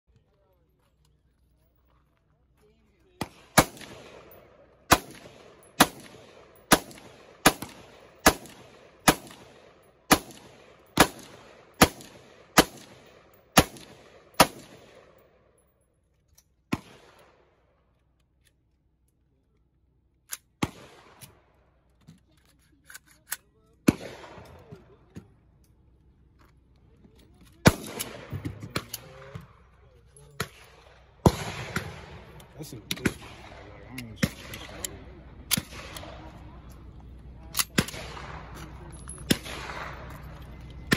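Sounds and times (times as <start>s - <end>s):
rifle shots: 3.2s - 15.3s, 16.7s - 17.5s, 20.6s - 21.4s, 23.8s - 24.7s, 27.6s - 29.6s, 30.4s - 36.4s, 37.6s - 40.9s.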